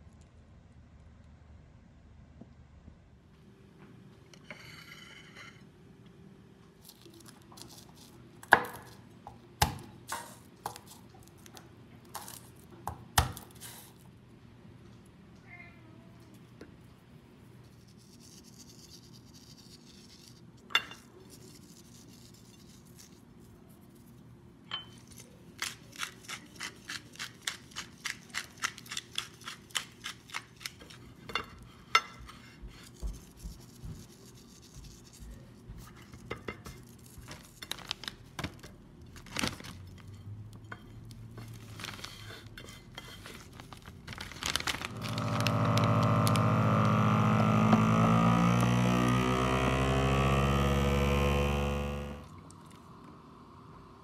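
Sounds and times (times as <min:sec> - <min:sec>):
pepper mill grinding: 0:25.0 - 0:31.0, 0:43.3 - 0:49.9
plate and packaging handling: 0:36.1 - 0:40.2, 0:40.8 - 0:47.6
vacuum sealer pump humming: 0:44.4 - 0:52.3.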